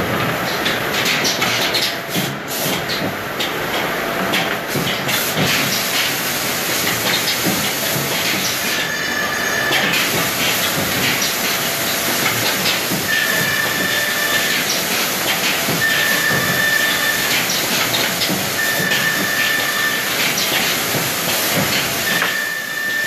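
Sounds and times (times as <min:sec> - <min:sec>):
woodworking machine running: 0:08.4 - 0:23.0.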